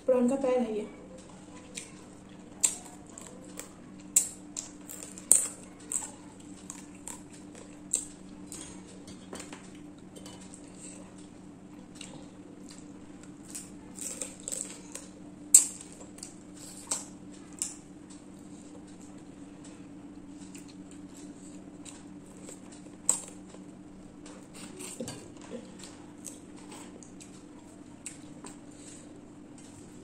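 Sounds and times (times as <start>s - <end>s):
steady low hum: 0.0s - 30.0s
prawn shell cracking and chewing: 1.2s - 8.8s, 9.5s - 19.1s.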